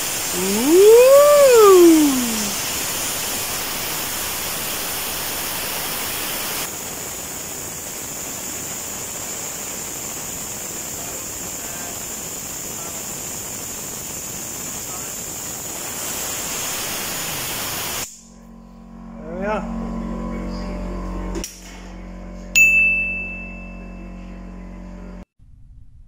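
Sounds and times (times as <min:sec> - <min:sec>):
steady hiss: 0:00.0 - 0:18.4
falling gliding tone: 0:00.3 - 0:02.6.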